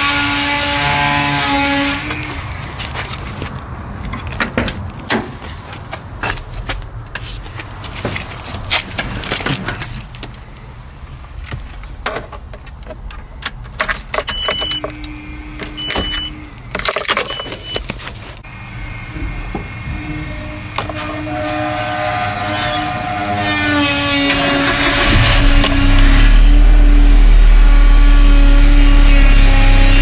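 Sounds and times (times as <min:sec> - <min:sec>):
steady low rumble: 0:24.6 - 0:30.0.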